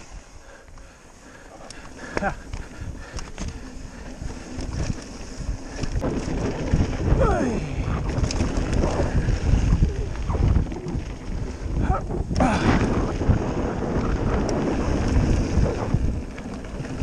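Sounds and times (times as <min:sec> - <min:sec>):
bike tyres rumbling over dirt: 0:00.0 - 0:17.0
wind buffeting microphone: 0:01.7 - 0:17.0.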